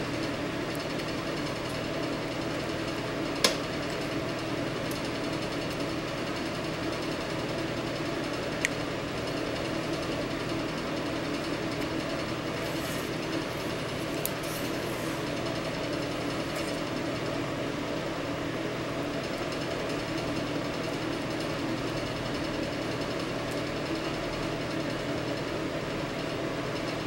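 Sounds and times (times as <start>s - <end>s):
small motor humming: 8.4s - 17.4s.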